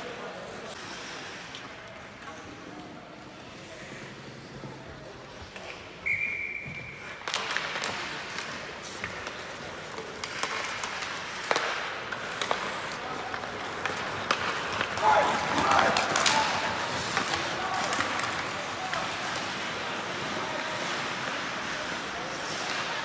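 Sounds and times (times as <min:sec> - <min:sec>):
skates scraping ice: 0:00.0 - 0:23.0
clicks of sticks and puck: 0:00.1 - 0:03.6, 0:04.3 - 0:23.0
referee's whistle: 0:06.0 - 0:07.1
voices: 0:11.7 - 0:23.0.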